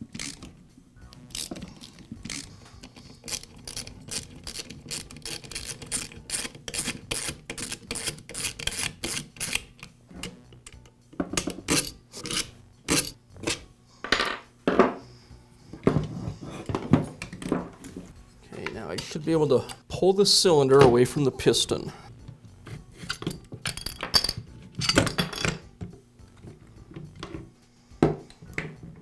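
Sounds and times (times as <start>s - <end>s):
plastic and metal parts clattering: 23.0s - 27.5s.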